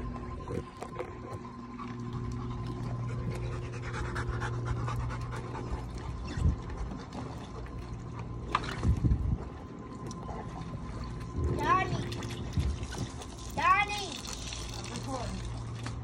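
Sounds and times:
dogs panting: 1.8 - 7.5.

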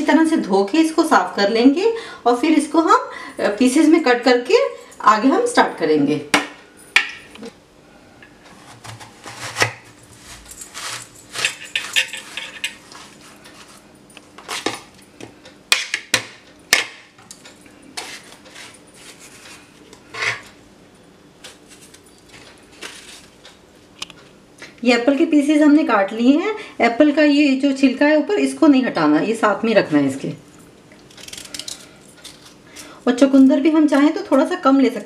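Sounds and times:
peeler scraping apple: 8.5 - 13.8.

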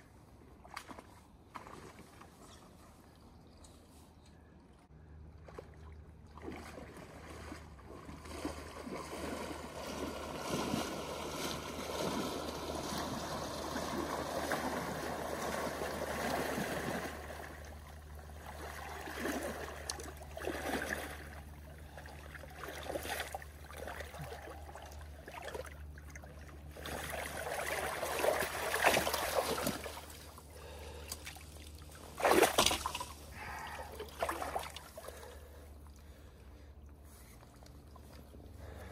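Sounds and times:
water sloshing around wading legs: 0.5 - 3.2, 5.0 - 38.9
water splashes: 5.3 - 36.2.

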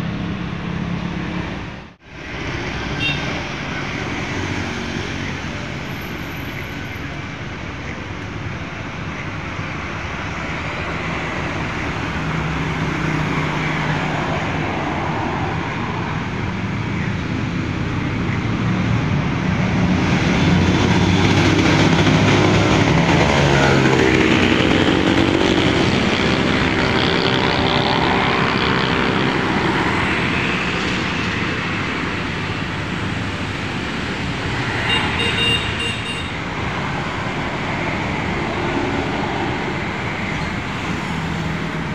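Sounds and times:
road traffic: 0.0 - 41.9
heavy vehicle engine passing: 10.0 - 41.9.

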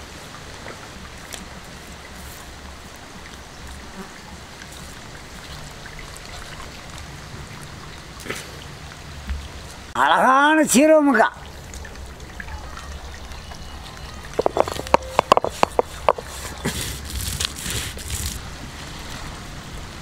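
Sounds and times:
stone roller wet scraping: 14.4 - 18.5.

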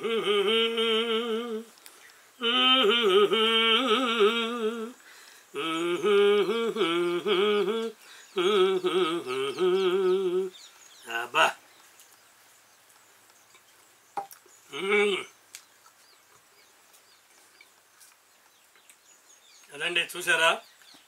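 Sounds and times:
person humming a slow tune: 0.0 - 10.7, 14.7 - 15.3.

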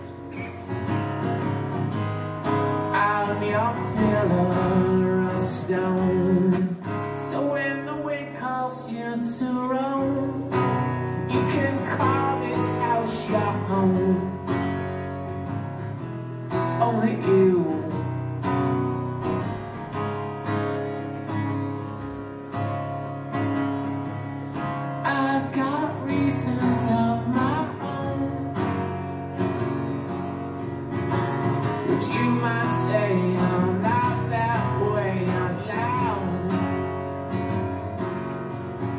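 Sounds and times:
strummed acoustic guitar: 0.0 - 38.9
man singing: 2.4 - 14.7, 16.5 - 18.1, 25.0 - 28.8, 31.5 - 37.6.

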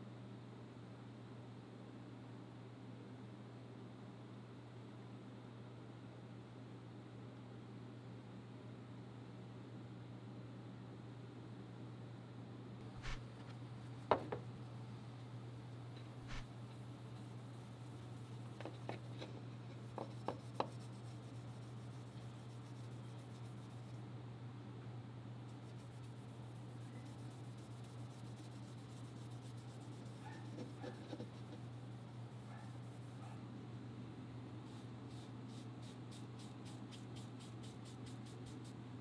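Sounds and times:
cloth rubbing on wood: 12.9 - 14.0, 16.2 - 16.5, 19.8 - 24.0, 25.5 - 33.3
light knocks on wood: 14.1 - 14.4.

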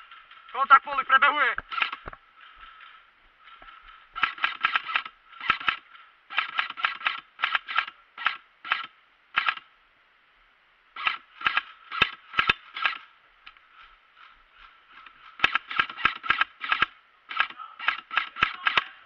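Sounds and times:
airsoft guns firing: 1.6 - 9.7, 11.0 - 13.1, 14.6 - 19.0.

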